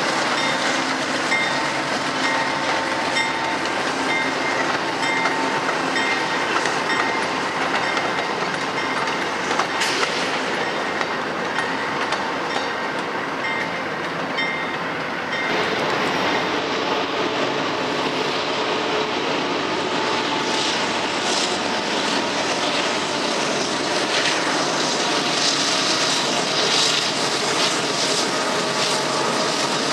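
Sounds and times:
train wheels clicking over track: 0:00.0 - 0:16.7
freight train rail noise: 0:00.0 - 0:29.9.

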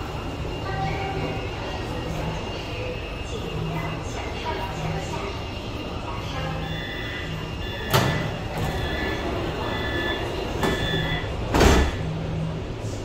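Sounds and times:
warning beeps: 0:06.4 - 0:11.4
sliding doors thudding shut: 0:10.6 - 0:12.0.

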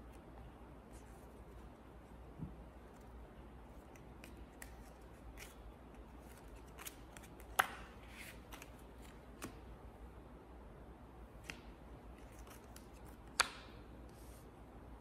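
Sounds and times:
playing cards flicking and snapping: 0:03.8 - 0:09.6, 0:11.4 - 0:13.8.

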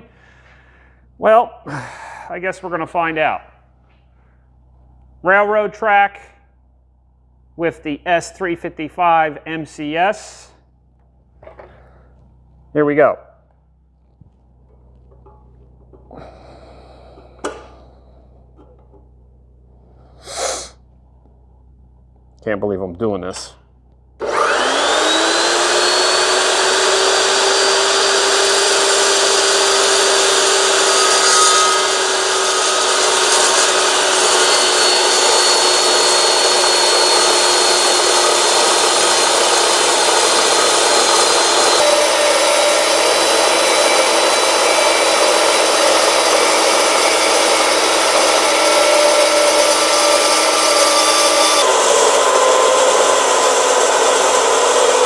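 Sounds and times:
metal chop saw cutting steel: 0:24.2 - 0:55.0.

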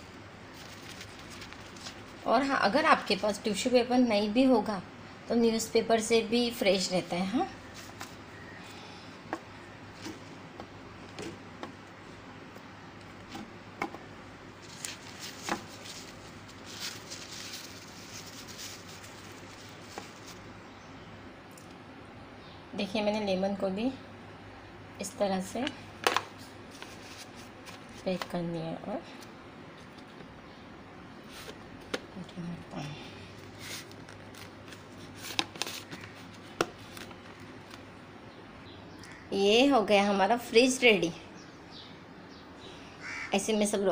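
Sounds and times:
tissue paper rustling: 0:00.5 - 0:02.3, 0:14.6 - 0:20.5, 0:26.7 - 0:28.1, 0:33.4 - 0:37.5
plastic containers clicking: 0:25.6 - 0:26.3.

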